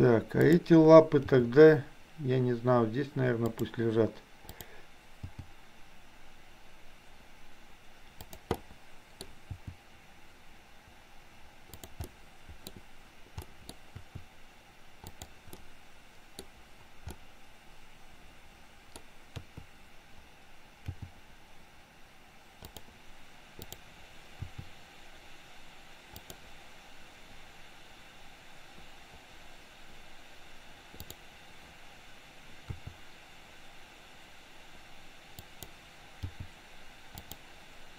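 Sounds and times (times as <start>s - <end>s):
faint steady hiss: 0.0s - 37.9s
mouse and keyboard clicks: 8.2s - 9.8s, 11.7s - 12.8s, 15.0s - 15.7s, 20.8s - 21.2s, 22.6s - 22.9s, 23.6s - 23.8s, 26.1s - 26.4s, 31.0s - 31.2s, 35.4s - 36.5s, 37.1s - 37.4s.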